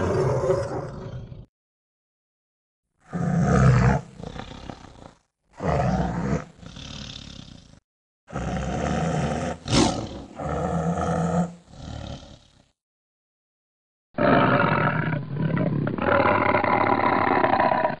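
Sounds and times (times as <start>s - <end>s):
tiger roaring: 0.0s - 1.5s, 3.0s - 7.7s, 8.3s - 12.6s, 14.2s - 18.0s.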